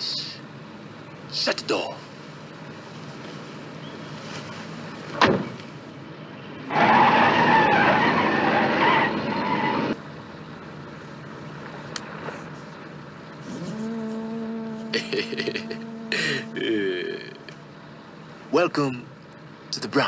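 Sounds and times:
car tyres screeching: 2.2 - 10.0, 11.1 - 18.6.

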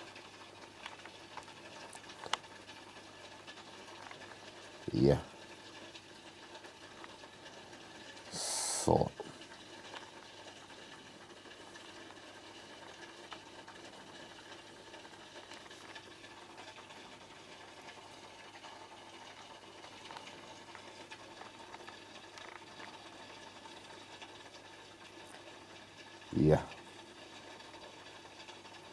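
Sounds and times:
small ticks: 0.0 - 8.7, 9.4 - 28.9
filter pump humming: 0.0 - 28.9.

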